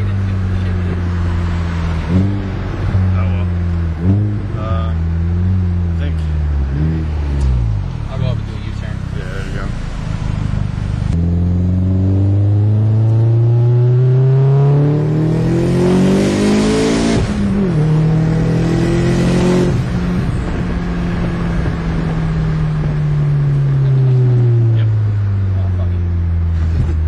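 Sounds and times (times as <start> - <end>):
car engine accelerating: 0.0 - 27.0.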